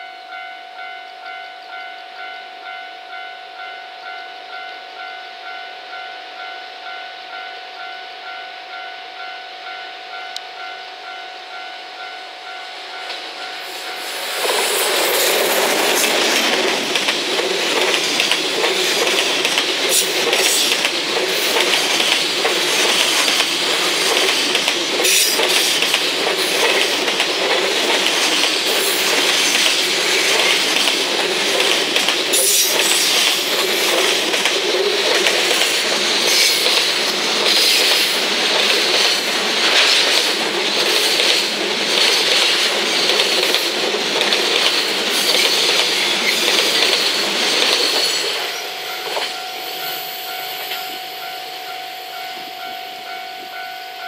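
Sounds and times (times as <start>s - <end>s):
train wheels clattering over rail joints: 14.3s - 49.4s.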